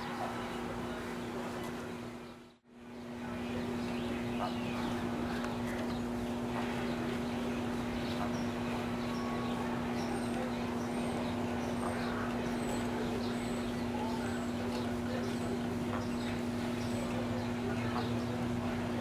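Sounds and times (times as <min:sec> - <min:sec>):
ducklings peeping: 0:00.0 - 0:19.0
steady low hum: 0:00.0 - 0:19.0.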